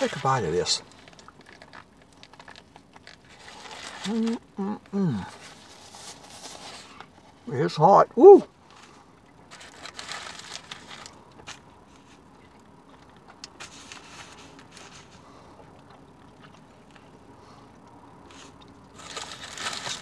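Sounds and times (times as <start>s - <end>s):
foil wrapper rustling: 0.0s - 7.5s, 8.6s - 15.5s, 18.2s - 20.0s
person chewing: 11.2s - 17.3s.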